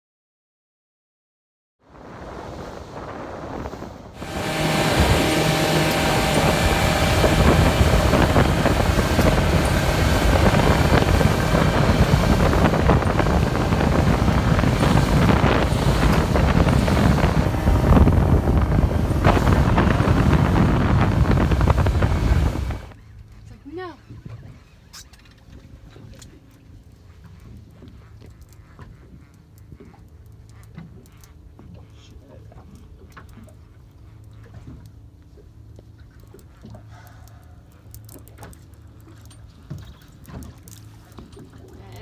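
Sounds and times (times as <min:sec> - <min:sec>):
wind buffeting microphone: 0:01.9 - 0:23.0
outboard motor running: 0:03.3 - 0:42.0.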